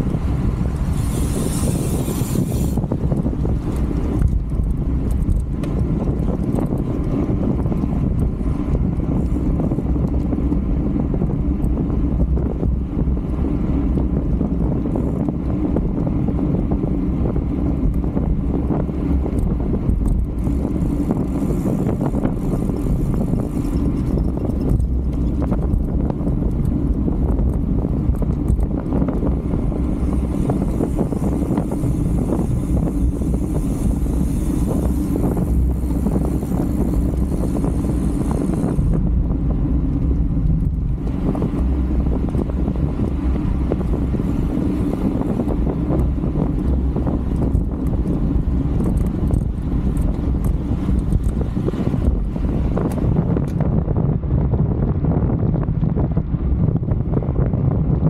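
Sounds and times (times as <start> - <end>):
wind roaring over microphone: 0.0 - 58.0.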